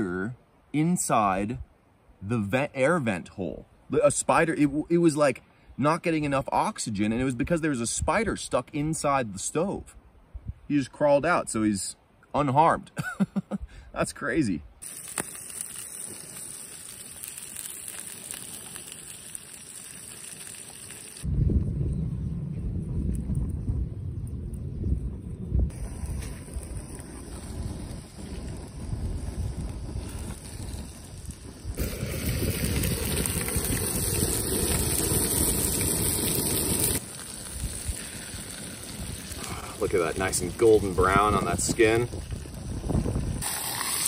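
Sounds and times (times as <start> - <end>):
fish sizzling in a pan: 14.8 - 21.3, 25.7 - 42.7, 43.3 - 44.0.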